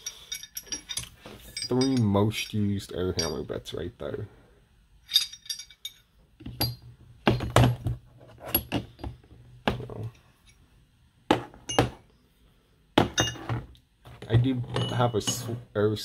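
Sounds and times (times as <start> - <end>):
metal bits clinking and knocking: 0.0 - 3.6, 5.0 - 9.3, 11.6 - 12.0, 13.0 - 13.6, 14.6 - 15.6.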